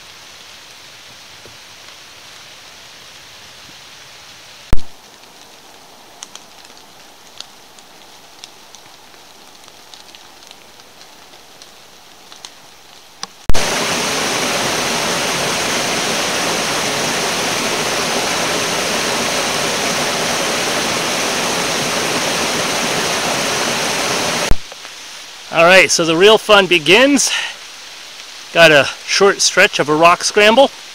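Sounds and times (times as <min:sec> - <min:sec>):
rain drops ticking: 0:00.0 - 0:30.9
rain falling in forest: 0:00.0 - 0:30.9
water cascading over stone: 0:13.4 - 0:30.9.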